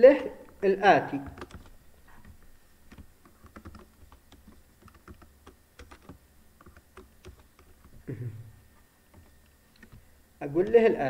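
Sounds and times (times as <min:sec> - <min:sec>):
typing on a keyboard: 0:01.2 - 0:08.1, 0:09.1 - 0:11.0.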